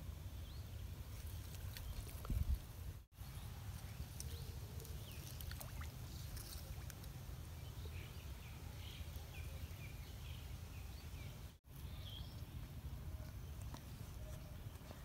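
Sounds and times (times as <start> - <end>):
wind on microphone: 1.8 - 3.0.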